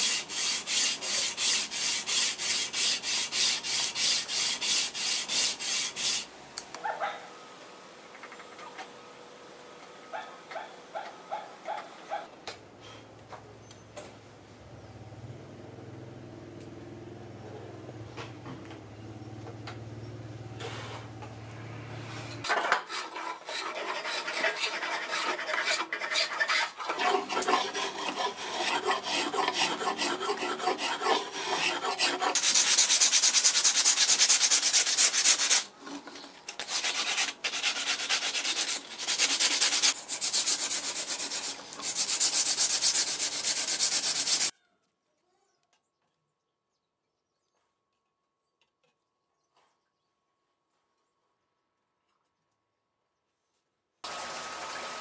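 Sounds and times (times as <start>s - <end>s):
rasp scraping wood: 22.4s - 35.7s, 36.6s - 44.5s
spokeshave shaving wood: 22.5s - 35.7s.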